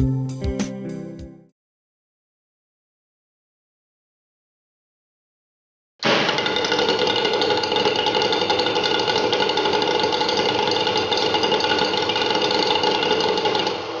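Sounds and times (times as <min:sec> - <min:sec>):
engine mechanical rattle: 0:06.0 - 0:14.0.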